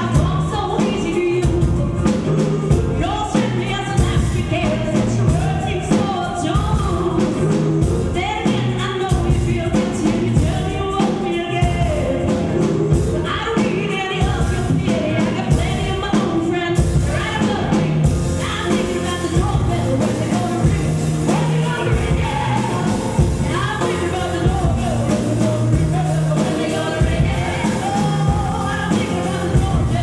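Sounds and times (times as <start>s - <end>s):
steady drum beat: 0.0s - 30.0s
woman singing lead: 0.0s - 30.0s
low bass line: 16.8s - 30.0s.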